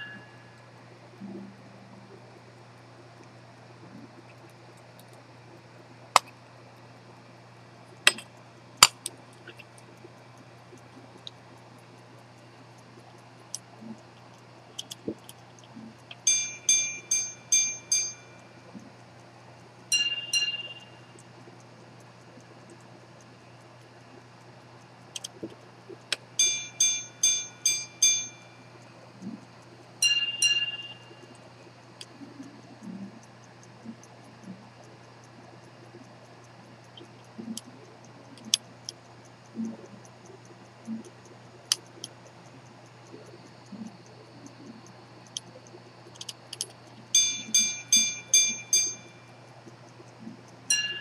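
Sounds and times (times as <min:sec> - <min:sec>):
watch mechanism clicks: 0:03.1 - 0:51.0
pocket watch metallic chimes: 0:16.2 - 0:18.5, 0:19.9 - 0:21.2, 0:26.4 - 0:28.6, 0:30.0 - 0:31.2, 0:47.1 - 0:49.3, 0:50.7 - 0:51.0.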